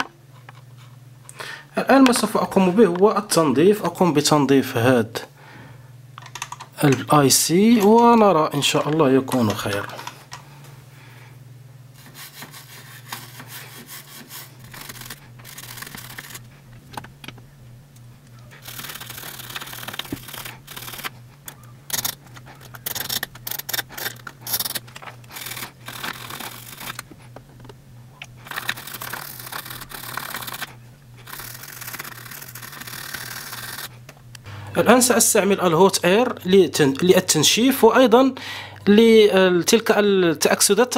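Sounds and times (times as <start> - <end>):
steady low hum: 0.0 - 40.9
scratchy scrubbing: 12.0 - 16.7, 18.5 - 27.4, 28.3 - 34.0.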